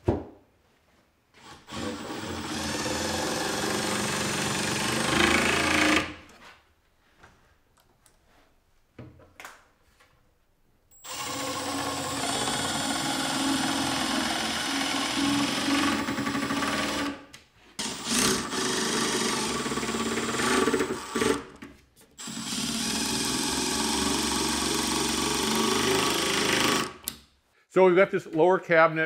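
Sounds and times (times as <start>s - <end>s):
impact driver hammering screws: 1.4s - 6.2s, 11.0s - 17.2s, 17.8s - 21.6s, 22.2s - 27.2s.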